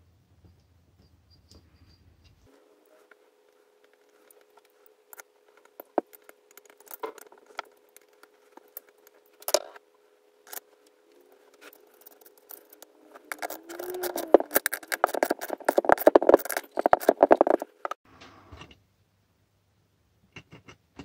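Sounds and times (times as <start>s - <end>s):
faint steady hum: 0.0s - 21.0s
metal parts rattling: 4.0s - 9.8s, 10.5s - 18.0s
metal tools clicking and knocking: 4.2s - 9.8s, 11.6s - 18.0s.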